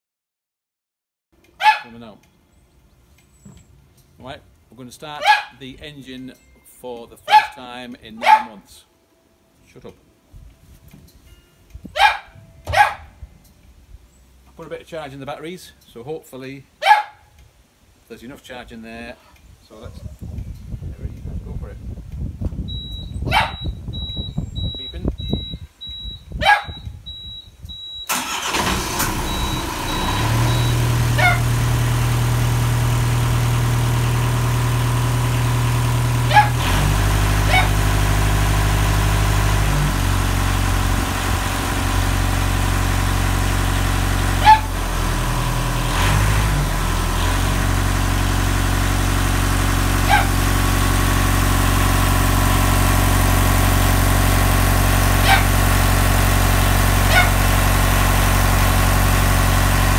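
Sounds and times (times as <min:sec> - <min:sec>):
high steady beep: 0:22.7 - 0:28.1
diesel engine starting and idling: 0:27.1 - 0:59.9.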